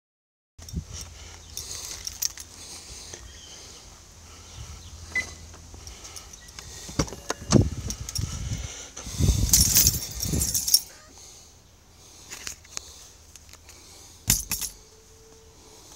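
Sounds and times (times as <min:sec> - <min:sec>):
car keys jingling: 0:01.5 - 0:02.6, 0:09.5 - 0:11.0.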